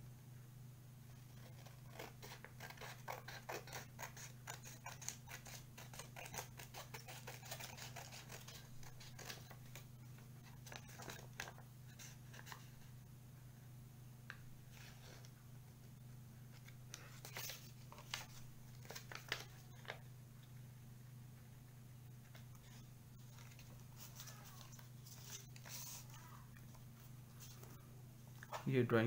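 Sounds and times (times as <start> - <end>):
steady low hum: 0.0 - 29.0
scissors cutting paper: 1.2 - 12.6, 16.9 - 20.0, 23.3 - 26.4.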